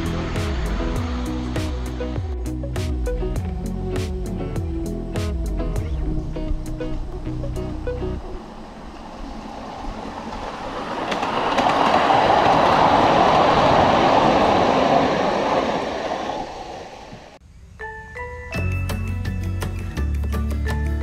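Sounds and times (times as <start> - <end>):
miniature train rolling past: 8.2 - 17.4.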